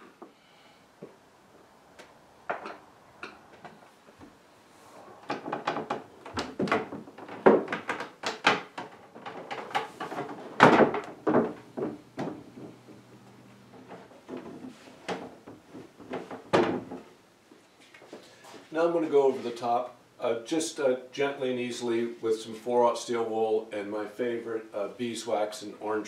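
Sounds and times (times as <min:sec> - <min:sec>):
wooden table knocks and thuds: 0:05.3 - 0:13.0, 0:13.9 - 0:17.1.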